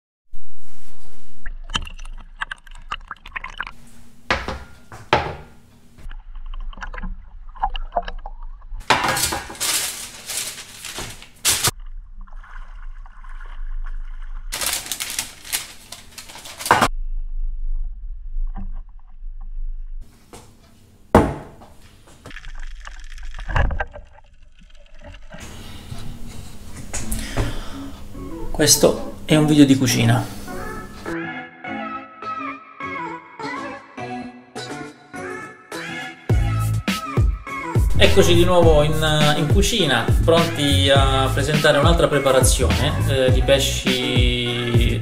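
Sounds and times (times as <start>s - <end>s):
sea water sloshing and splashing: 9.7s - 15.5s, 22.2s - 25.4s.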